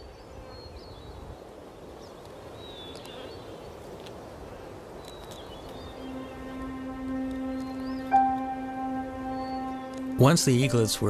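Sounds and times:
outdoor background hiss: 0.0s - 11.0s
high bird chirps: 5.2s - 11.0s.

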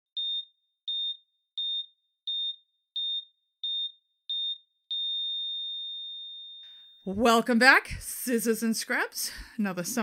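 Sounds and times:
heart monitor beeping: 0.2s - 7.1s.

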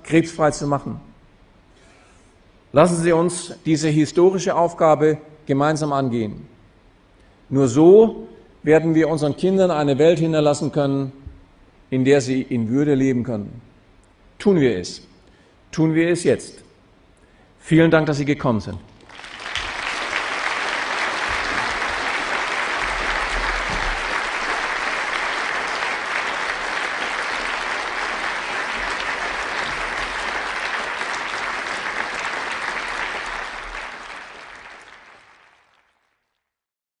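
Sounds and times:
audience applauding: 19.0s - 36.3s.

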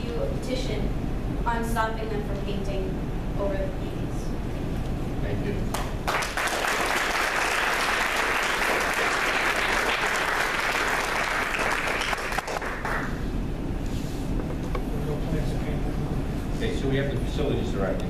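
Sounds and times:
audience clapping: 5.7s - 13.3s.

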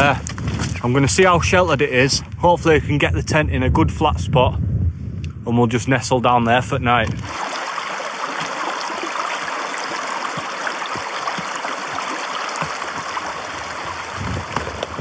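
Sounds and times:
stream rushing over rocks: 7.2s - 15.0s.

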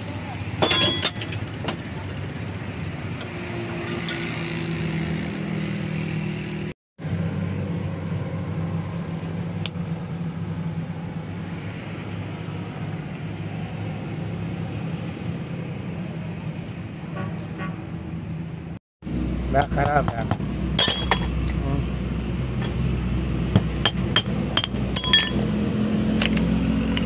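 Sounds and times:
low mechanical hum and rumble: 7.0s - 27.0s.

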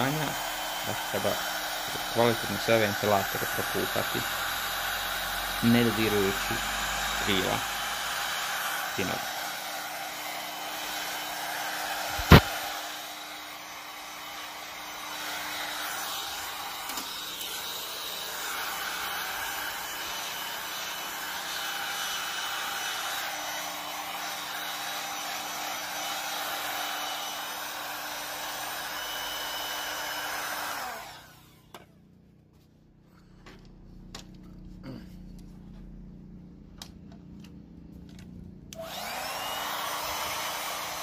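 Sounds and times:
electric air pump blowing: 0.0s - 31.8s, 38.7s - 41.0s
sharp knock: 12.2s - 12.5s.

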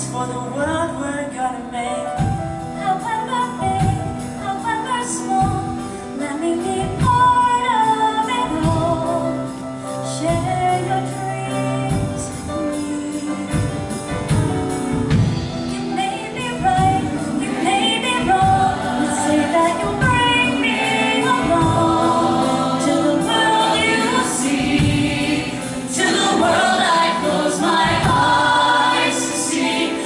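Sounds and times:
woman singing into a microphone: 0.0s - 13.6s, 15.8s - 25.0s
instrumental accompaniment: 0.1s - 30.0s.

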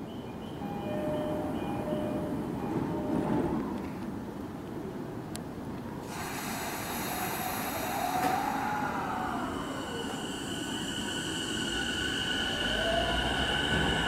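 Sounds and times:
train wheels rumbling on rail: 0.6s - 14.0s
electric train motors whining: 6.0s - 14.0s.

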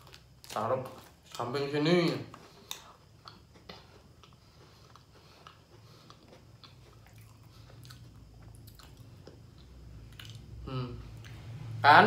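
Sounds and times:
chewing biscuit: 2.3s - 10.5s.

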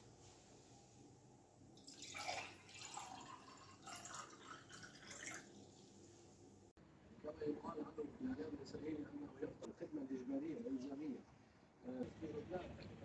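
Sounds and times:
water pouring into glass: 1.8s - 5.9s.

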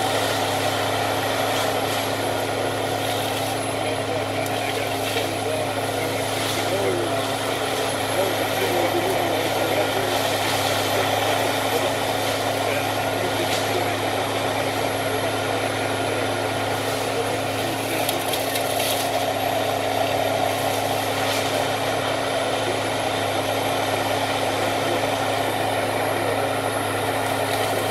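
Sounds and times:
forestry mulcher humming: 0.0s - 27.9s
brush crackling: 16.7s - 22.0s.

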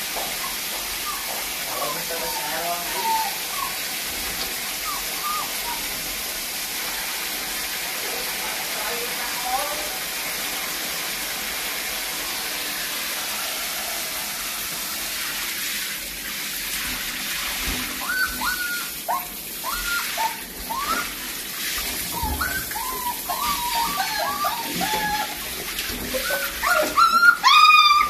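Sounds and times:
hose spraying water on tiles: 0.0s - 28.0s
puppies whining: 0.4s - 6.3s, 17.7s - 21.4s, 22.0s - 28.0s.

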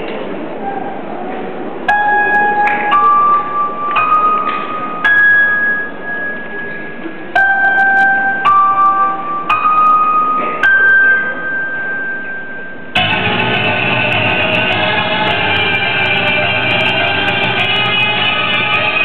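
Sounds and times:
high keyboard notes: 1.9s - 19.0s
dance music over sound system: 13.0s - 19.0s.

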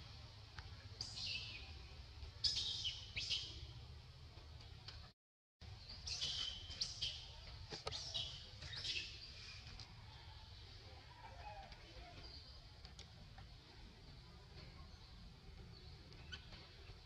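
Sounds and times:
birds chirping: 5.7s - 9.8s.

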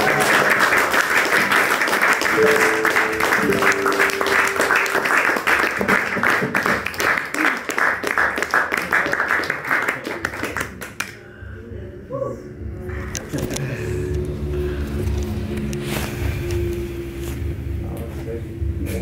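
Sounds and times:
audience applause: 0.0s - 11.0s.

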